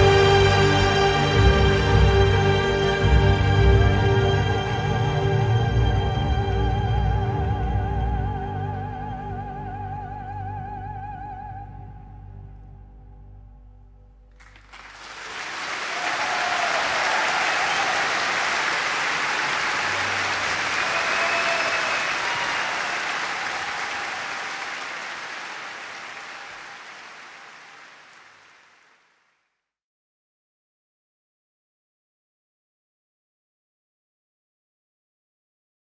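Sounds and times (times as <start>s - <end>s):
orchestral music: 0.0s - 9.5s
audience applause: 14.4s - 29.2s.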